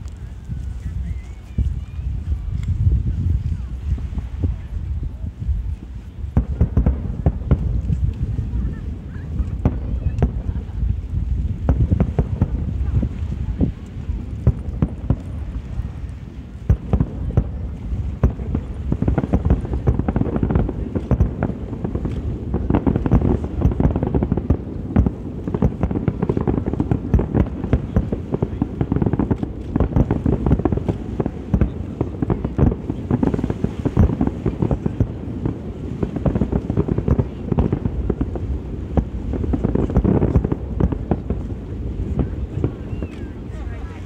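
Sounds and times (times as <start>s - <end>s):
aerial fireworks bursting: 0.0s - 44.0s.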